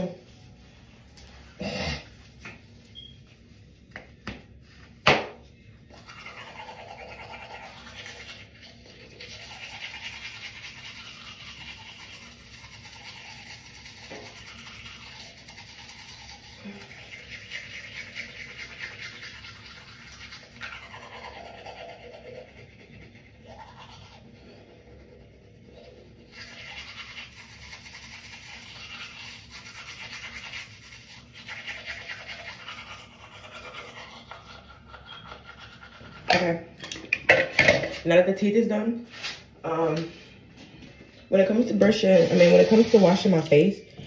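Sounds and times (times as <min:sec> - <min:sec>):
toothbrush scrubbing teeth: 0:05.8 - 0:36.6, 0:41.5 - 0:44.0.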